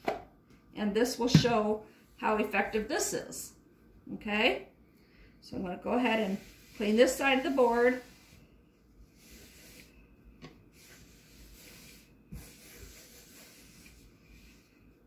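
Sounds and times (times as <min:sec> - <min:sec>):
wipe rubbing across cutting board: 0:05.9 - 0:09.9, 0:10.7 - 0:14.8.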